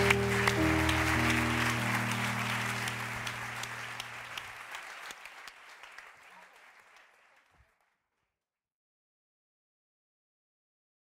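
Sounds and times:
music of sustained low notes: 0.0 - 4.5
audience applauding: 0.0 - 8.0.

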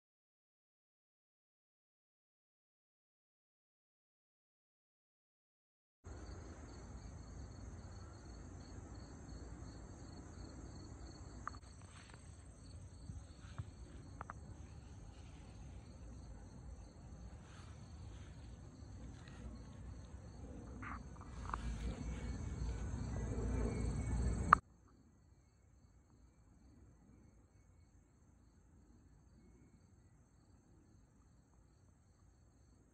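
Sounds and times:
insect chorus: 6.1 - 32.9
low rumble: 11.5 - 24.6.

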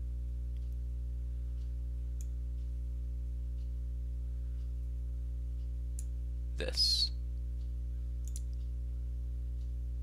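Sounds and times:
low electrical hum: 0.0 - 10.0
computer mouse clicks: 8.2 - 8.7.

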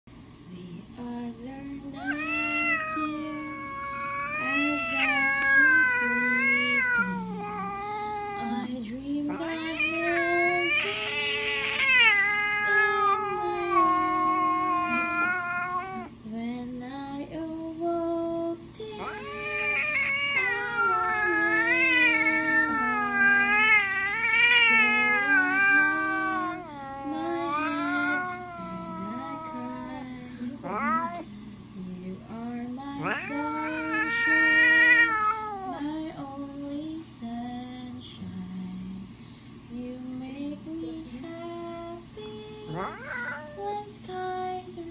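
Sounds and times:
cat yowling: 2.0 - 8.6, 9.3 - 16.1, 19.0 - 31.2, 33.0 - 35.8, 42.7 - 43.8.

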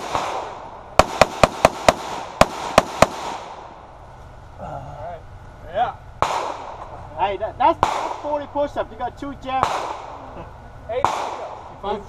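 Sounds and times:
rifle shots with echo: 0.0 - 3.8, 6.2 - 6.9, 7.7 - 8.4, 9.5 - 10.2, 11.0 - 11.8.

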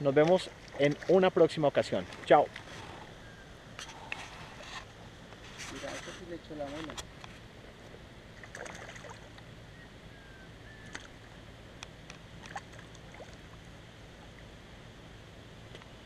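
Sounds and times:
low steady background noise: 0.0 - 16.0
fish splashing in water: 8.4 - 9.4, 12.4 - 13.7.

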